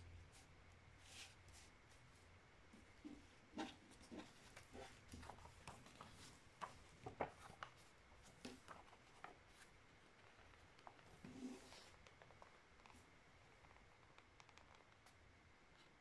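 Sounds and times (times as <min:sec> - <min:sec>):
paper crinkling and creasing: 0:03.6 - 0:13.0.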